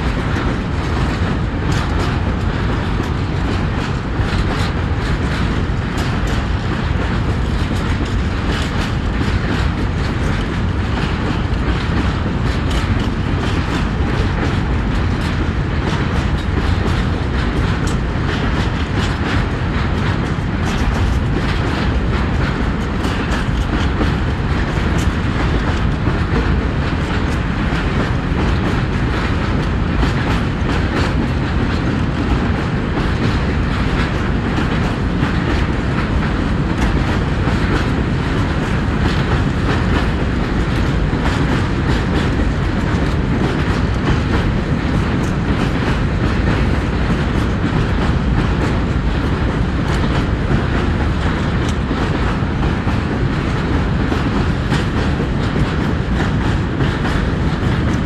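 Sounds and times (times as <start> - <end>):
train rumbling: 0.0 - 58.0
wheels clattering over rail joints: 0.0 - 58.0.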